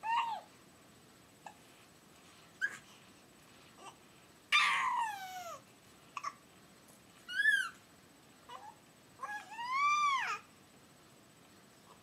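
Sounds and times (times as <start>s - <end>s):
baby squealing: 4.5s - 5.6s, 7.3s - 7.8s.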